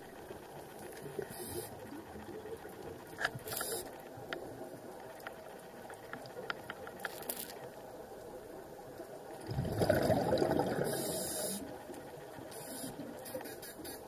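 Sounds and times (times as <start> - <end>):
faint scattered ticks: 0.0 - 9.5, 10.5 - 14.0
underwater regulator bubbles: 9.3 - 11.7.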